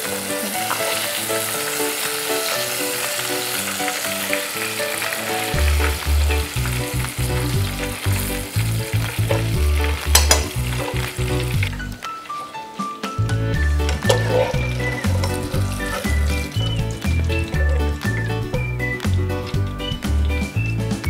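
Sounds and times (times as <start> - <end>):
food sizzling in hot oil: 0.0 - 21.0
background music with bass: 5.6 - 12.0, 13.2 - 21.0.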